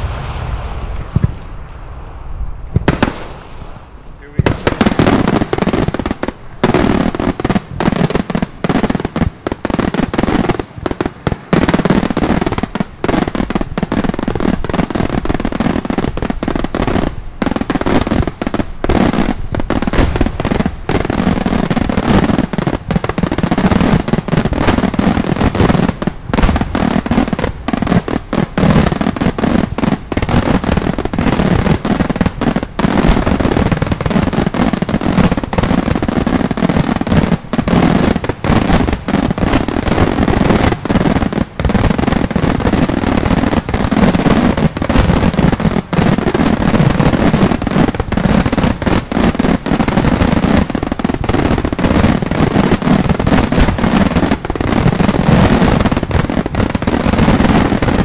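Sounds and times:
fireworks banging: 0.0s - 58.0s.

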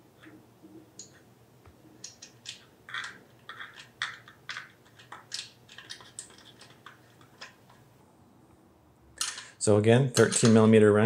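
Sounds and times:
metal nut clicking and rattling: 2.0s - 7.8s, 9.2s - 9.6s.

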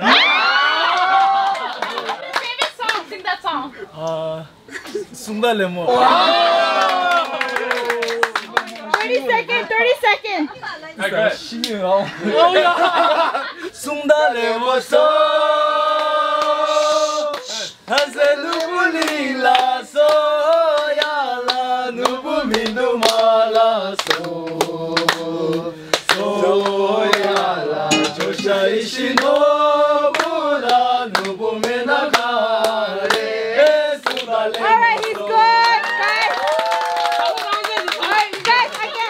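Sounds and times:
voices singing long notes: 13.9s - 35.6s
short clicking beats: 27.9s - 28.8s.

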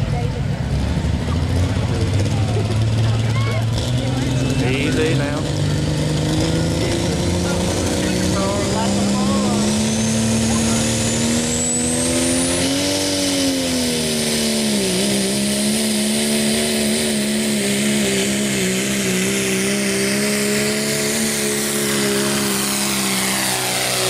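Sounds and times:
diesel truck engine at full throttle: 0.0s - 24.0s.

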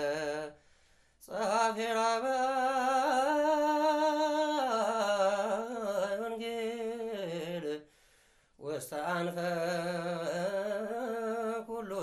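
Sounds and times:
solo voice chanting a hymn: 0.0s - 0.6s, 1.2s - 7.9s, 8.6s - 12.0s.

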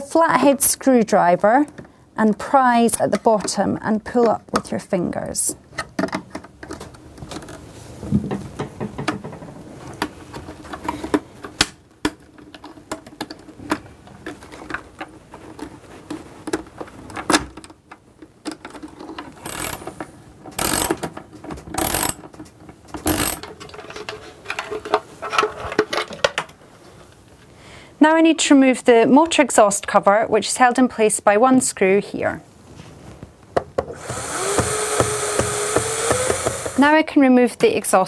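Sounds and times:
socket ratchet rasping: 19.4s - 19.8s, 20.6s - 21.0s, 21.8s - 22.2s, 23.0s - 23.4s, 34.0s - 36.8s.

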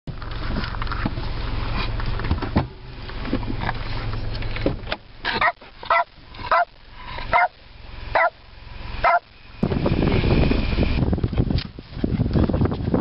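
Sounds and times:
dog barking: 5.4s - 8.4s, 9.0s - 9.3s.

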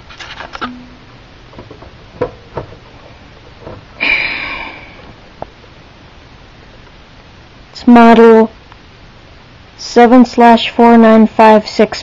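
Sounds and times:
plastic case knocks: 1.6s - 2.8s.

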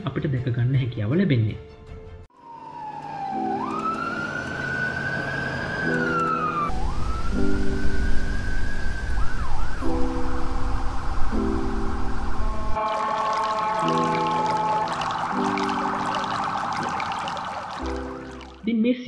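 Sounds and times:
emergency vehicle siren wailing: 2.3s - 18.6s
low rumble: 6.7s - 12.8s.

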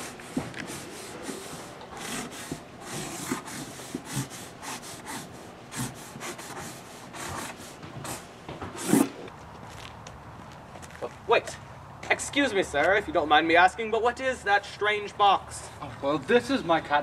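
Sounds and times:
marker scraping on cardboard: 0.0s - 9.2s.

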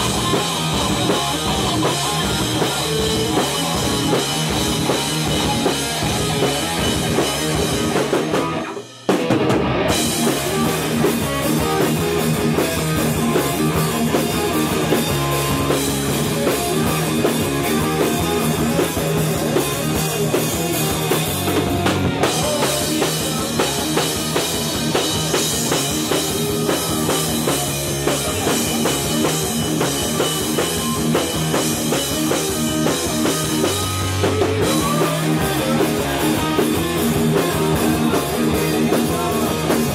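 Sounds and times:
heavy metal band playing: 0.0s - 39.9s.

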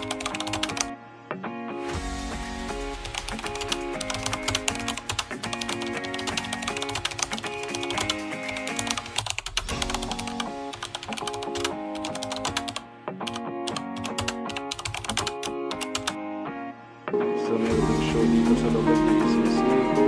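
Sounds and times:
background music with sustained notes: 0.0s - 20.0s
keyboard key clicks: 3.2s - 16.2s.

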